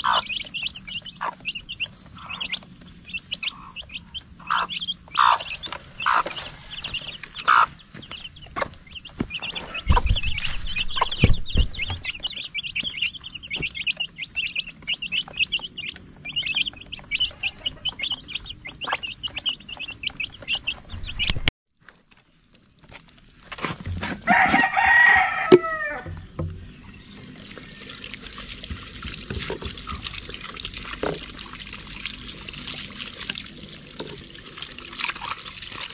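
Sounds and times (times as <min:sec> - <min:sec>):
chicks peeping: 0:00.0 - 0:21.5
hen clucking: 0:00.0 - 0:21.5, 0:24.3 - 0:30.1
dull low thumps: 0:07.8 - 0:12.3, 0:20.6 - 0:21.5.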